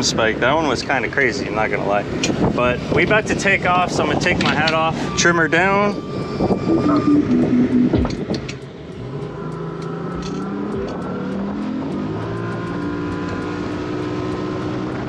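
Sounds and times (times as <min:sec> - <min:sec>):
outboard engine accelerating: 0:06.0 - 0:15.0.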